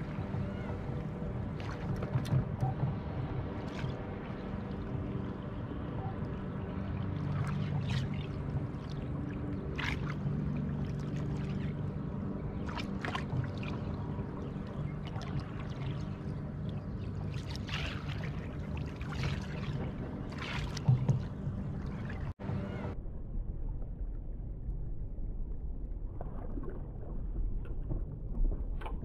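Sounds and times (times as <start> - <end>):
water splashing: 6.7 - 22.4.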